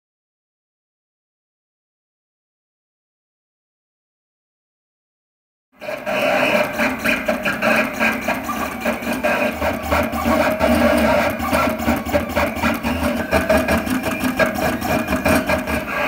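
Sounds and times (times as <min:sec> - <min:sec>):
plotter motors whirring: 0:05.8 - 0:16.0.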